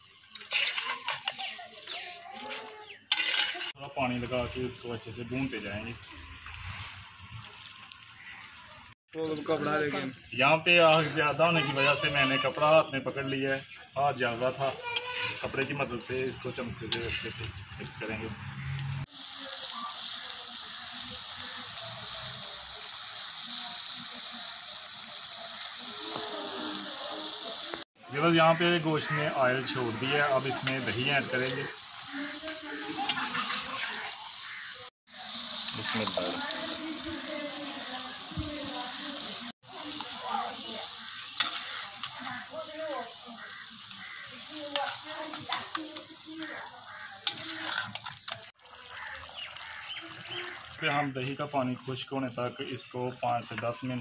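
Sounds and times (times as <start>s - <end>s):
meat sizzling in oil: 0.0s - 54.0s
metal spatula scraping pot: 0.1s - 3.8s, 15.0s - 15.8s, 16.6s - 17.5s, 28.5s - 37.4s, 39.2s - 49.8s.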